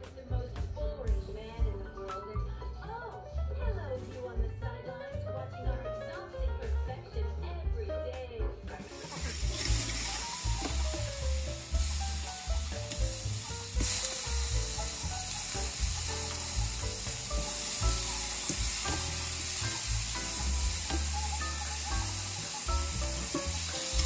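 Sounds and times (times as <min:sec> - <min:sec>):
background music with pulsing bass: 0:00.0 - 0:24.0
meat sizzling in skillet: 0:08.8 - 0:24.0.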